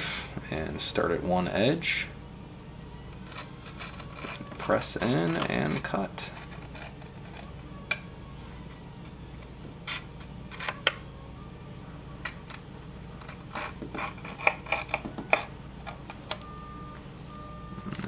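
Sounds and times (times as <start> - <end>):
low steady hum: 0.0 - 18.0
knife scraping tape and plastic: 13.2 - 15.5.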